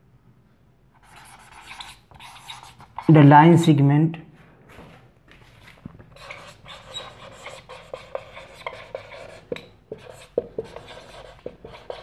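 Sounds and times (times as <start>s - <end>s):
marker squeaking on a whiteboard: 1.0s - 3.1s, 6.1s - 12.0s.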